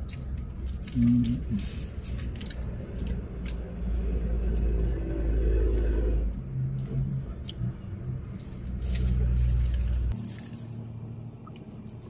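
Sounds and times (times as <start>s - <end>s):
person eating: 0.0s - 5.0s
vehicle rumble in car cabin: 0.0s - 12.0s.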